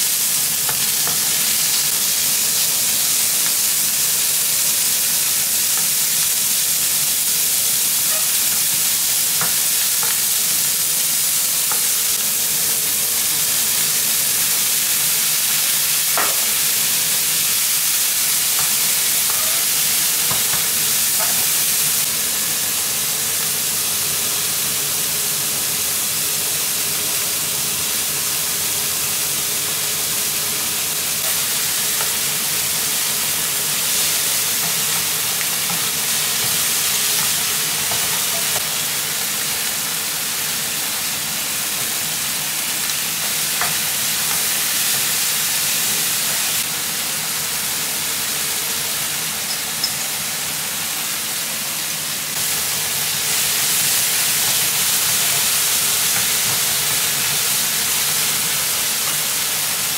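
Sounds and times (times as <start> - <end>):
meat sizzling in oil: 0.0 - 59.9.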